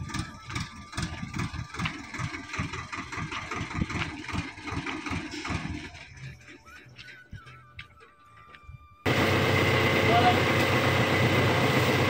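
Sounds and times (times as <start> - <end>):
trailer knocking and rattling: 0.0 - 8.4
tractor diesel engine running: 0.0 - 12.0.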